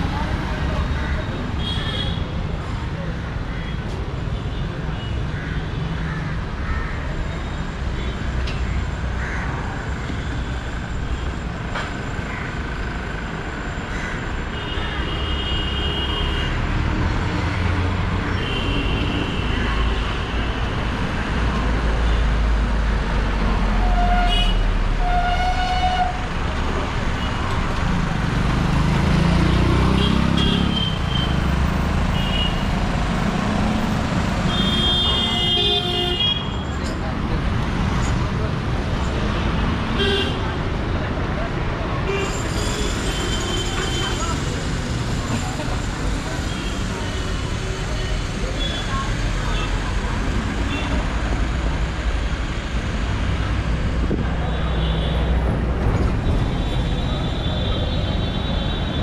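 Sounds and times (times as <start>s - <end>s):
city street traffic rumble: 0.0s - 59.0s
vehicle engines running: 26.2s - 34.9s, 36.7s - 59.0s.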